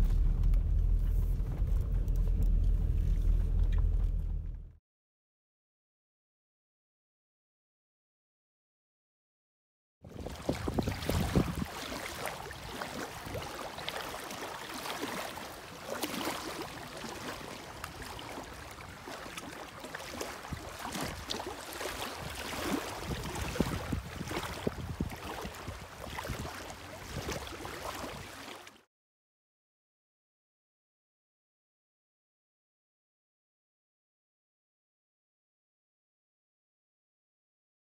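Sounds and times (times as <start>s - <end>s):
wind buffeting microphone: 10.0s - 13.6s, 20.3s - 28.3s
waves lapping on shore: 10.1s - 28.9s.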